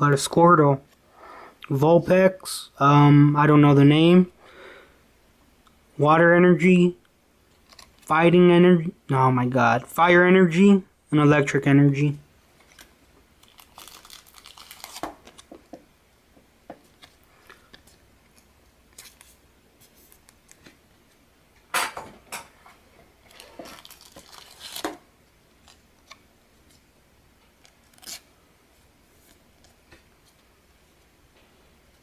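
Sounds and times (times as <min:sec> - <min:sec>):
plastic card sleeves rustling: 0:07.5 - 0:08.1, 0:12.6 - 0:15.7, 0:16.8 - 0:21.2, 0:23.3 - 0:25.0, 0:27.6 - 0:28.3.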